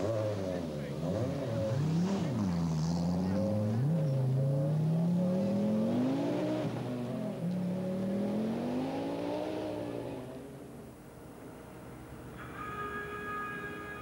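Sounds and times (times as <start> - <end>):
rally car engine accelerating: 0.0 - 10.8.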